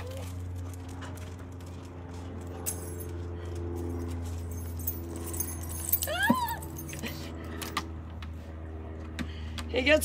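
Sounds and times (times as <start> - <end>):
steady low hum: 0.0 - 10.0
keys clinking: 3.8 - 7.8.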